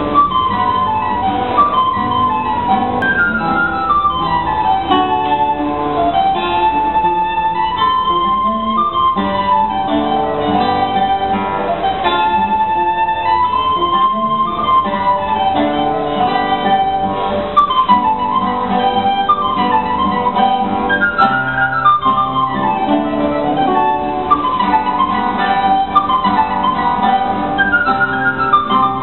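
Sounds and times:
plucked guitar: 0.0s - 29.0s
recorder melody: 0.0s - 29.0s.

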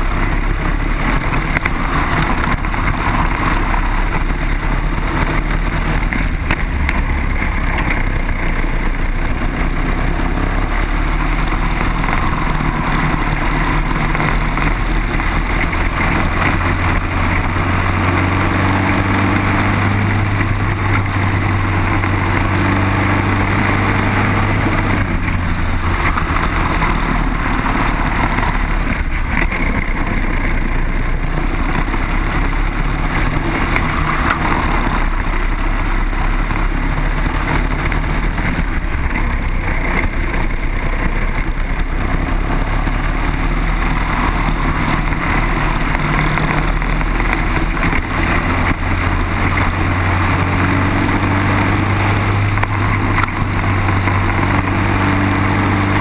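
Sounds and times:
kart engine at race pace: 0.0s - 56.0s.

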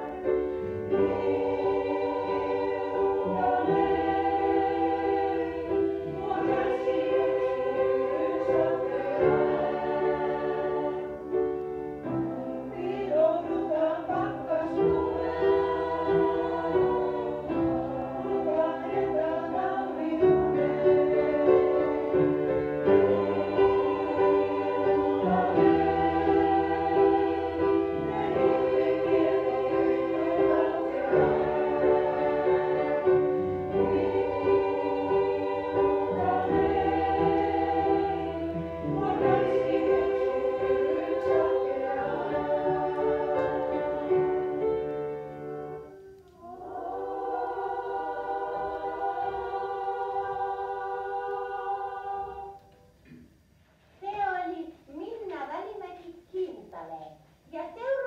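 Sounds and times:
piano accompaniment: 0.0s - 46.2s
choir singing: 0.0s - 52.9s.

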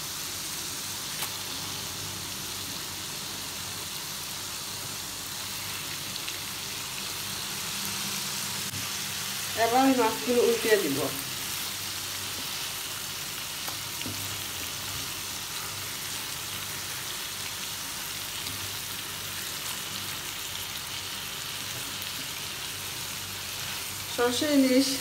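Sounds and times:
fish sizzling in a pan: 0.0s - 25.0s.

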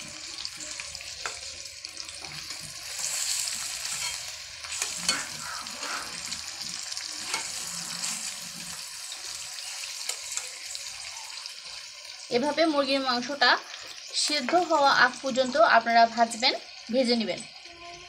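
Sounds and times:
chicken sizzling in oil: 0.0s - 18.0s
metal spatula scraping pan: 2.2s - 6.4s, 7.2s - 8.7s.

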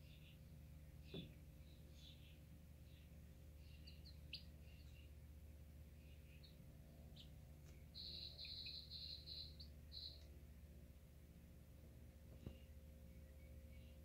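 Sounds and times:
chicks peeping: 1.0s - 5.3s, 5.9s - 10.3s.

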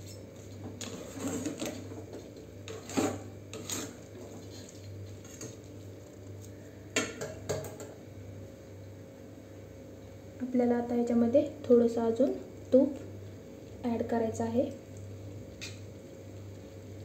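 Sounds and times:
spatula scraping and knocking pan: 0.0s - 4.6s
steady low hum: 0.0s - 17.0s.

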